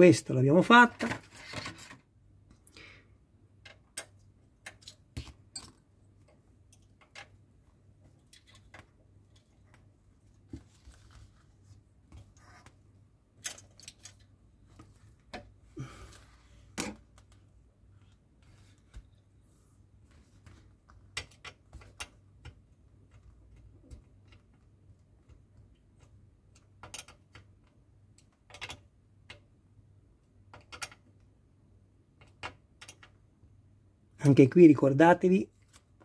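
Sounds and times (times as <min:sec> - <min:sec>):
small metal and plastic parts handled: 0:03.6 - 0:07.4, 0:08.1 - 0:11.4, 0:13.4 - 0:15.5.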